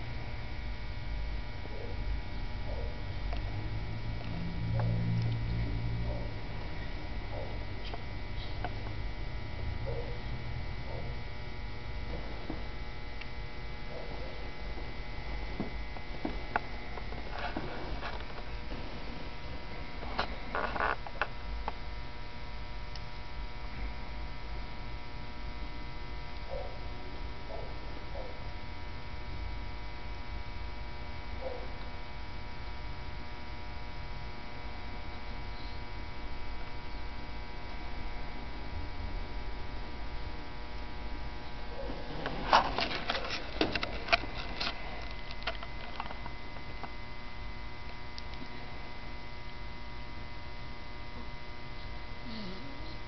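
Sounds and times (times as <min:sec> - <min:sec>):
electrical mains hum: 0:00.0 - 0:53.0
sharp clicks and rustles: 0:15.4 - 0:21.8, 0:41.4 - 0:47.0.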